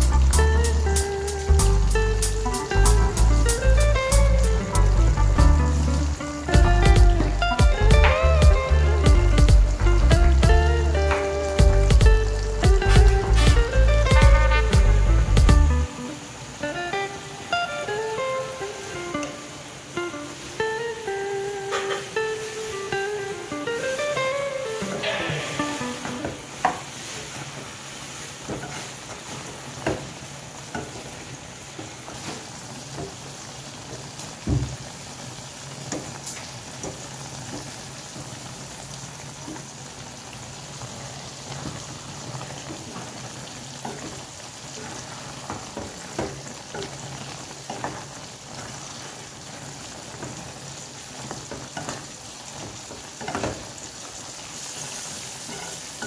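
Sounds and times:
curry sizzling in a pan: 0.0s - 56.0s
wooden spatula scraping a pan: 26.6s - 29.5s.

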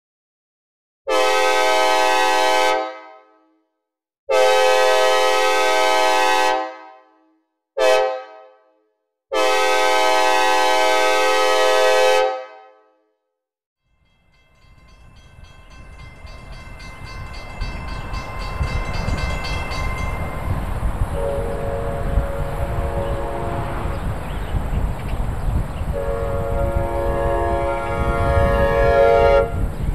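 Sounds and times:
locomotive air horn blasts: 1.1s - 3.5s, 4.3s - 8.6s, 9.3s - 13.0s, 21.0s - 24.2s, 25.9s - 29.7s
approaching train rumble: 14.0s - 29.9s.

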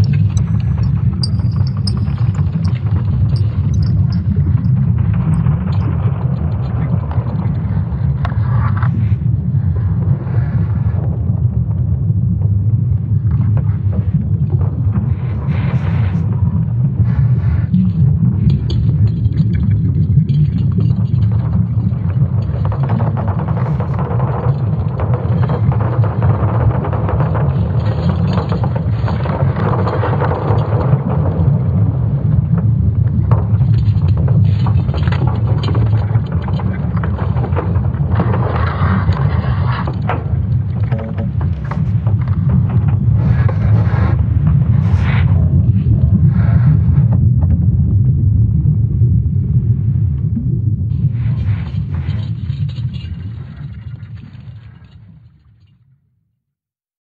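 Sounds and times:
scattered clicks: 0.0s - 7.6s
deep rumble: 0.0s - 55.4s
faint crackles: 12.3s - 47.6s, 50.9s - 55.6s
crackling: 33.1s - 46.8s.

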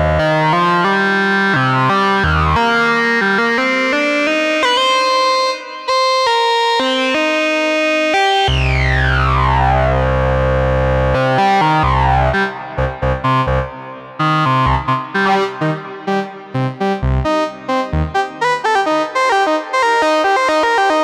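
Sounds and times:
synthesizer low note with sweep: 8.5s - 19.0s.

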